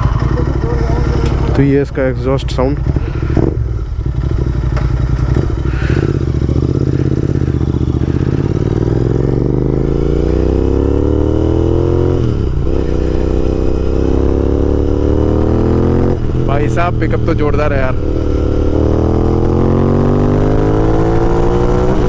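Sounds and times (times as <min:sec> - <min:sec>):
motorcycle engine accelerating hard: 0:00.0 - 0:22.0.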